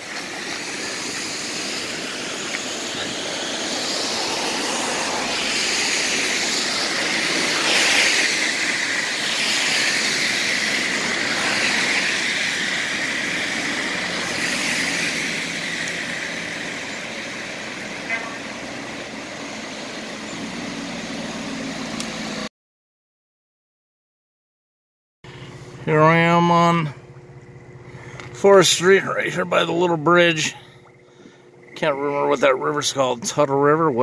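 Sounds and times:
river rushing over waterfall: 0.0 - 22.5.

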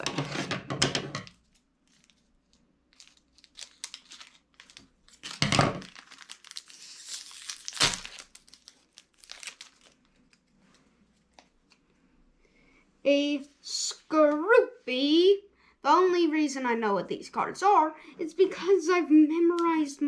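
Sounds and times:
wrapper tearing and crinkling: 1.4 - 10.6.

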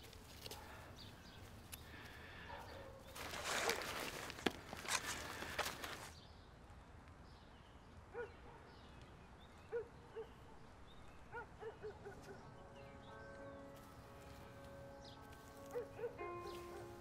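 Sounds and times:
quiet outdoor ambience: 0.0 - 17.0
dog barking: 2.4 - 3.1, 8.1 - 8.7, 9.7 - 10.4, 11.3 - 12.5, 15.7 - 17.0.

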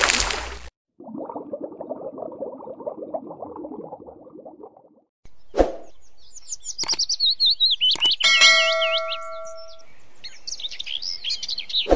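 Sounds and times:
birds chirping: 5.3 - 11.9
sharp clicks: 6.8 - 7.1, 7.9 - 8.4
notification bell chime: 8.2 - 9.8.

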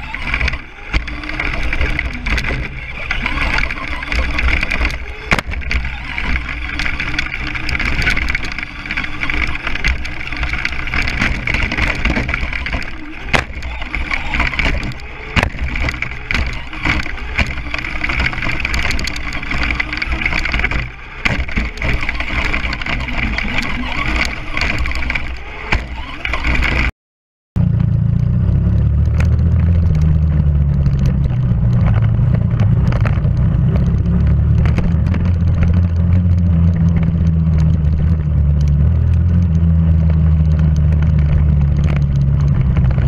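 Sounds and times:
rc car rumble and rattle: 0.0 - 26.9, 27.6 - 43.0
sharp knocks from bumps: 0.0 - 26.9.

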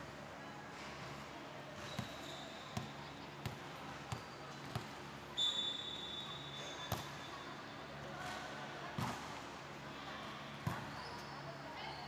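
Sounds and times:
referee whistle blast: 5.4 - 6.5.

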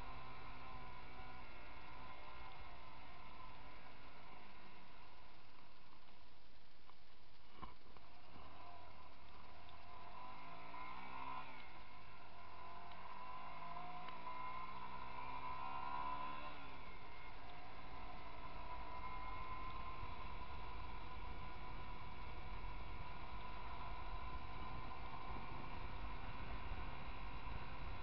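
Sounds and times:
wind rumble on microphone: 7.6 - 28.0.

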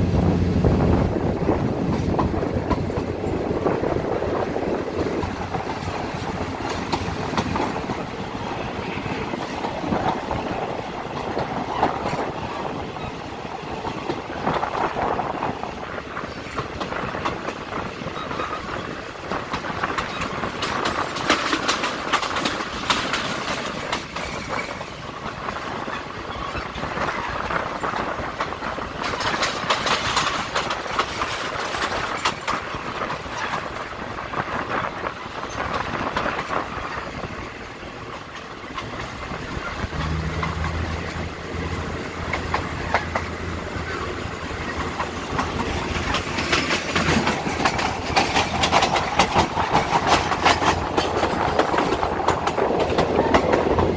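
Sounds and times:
low engine hum: 0.0 - 5.4
train wheels clattering on rails: 0.0 - 53.9.

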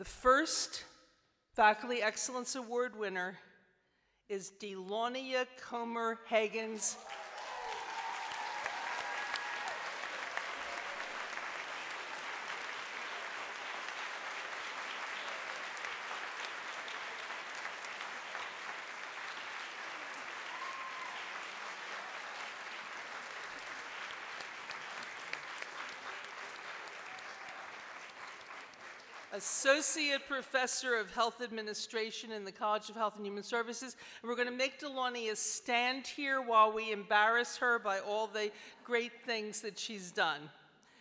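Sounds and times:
audience applauding: 7.0 - 29.4.

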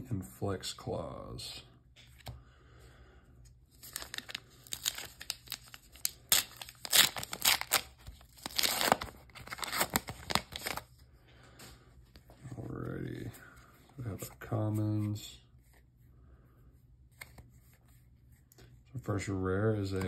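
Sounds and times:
foil wrapper crinkling and tearing: 3.8 - 10.9.

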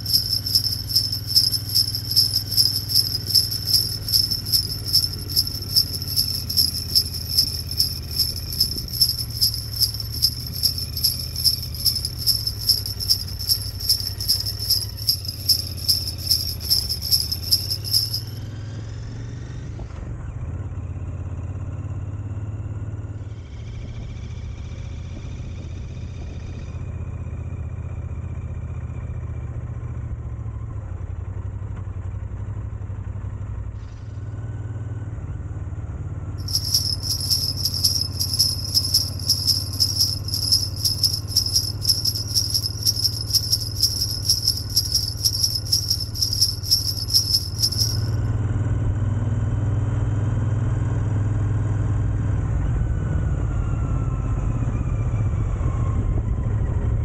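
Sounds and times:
low hum: 0.0 - 18.4
sleigh bells jingling: 0.0 - 18.4, 36.4 - 48.2.

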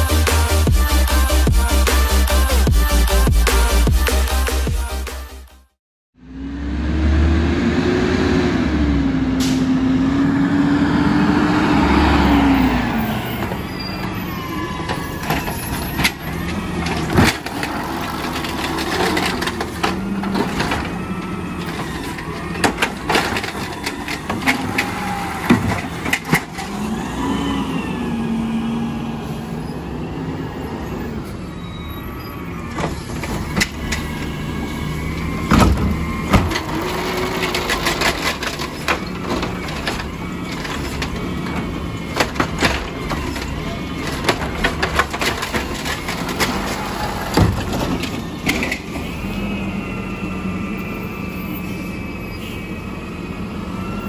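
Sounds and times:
garbage truck engine: 0.0 - 54.0
hydraulic arm whine: 11.7 - 54.0
knocks and clanks of cart lifting: 14.8 - 26.9, 32.7 - 49.1.

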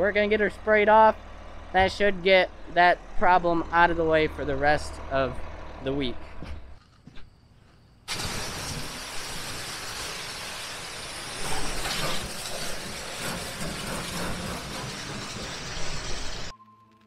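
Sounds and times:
low engine rumble: 0.0 - 6.8
pressure washer spray hissing: 8.1 - 16.5.

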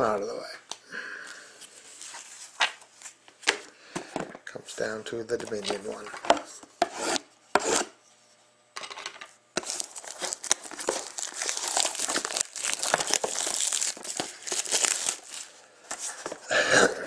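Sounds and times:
plastic wrap crinkling as torn: 9.6 - 15.6.

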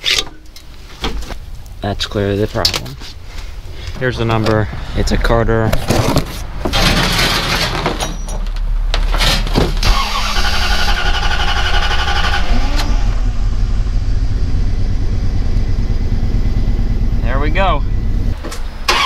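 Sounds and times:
engine cranking and starting: 9.0 - 13.4, 18.5 - 19.0.

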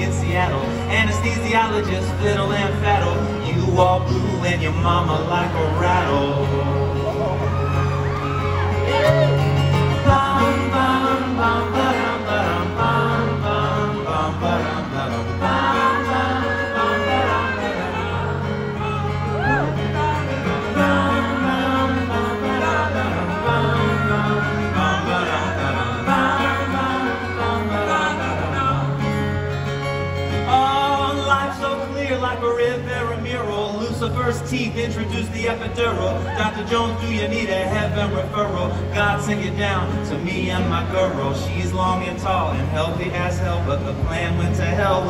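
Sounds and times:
men singing together: 0.0 - 7.4, 9.8 - 29.5
acoustic guitar: 0.0 - 45.0
banjo: 0.0 - 45.0.

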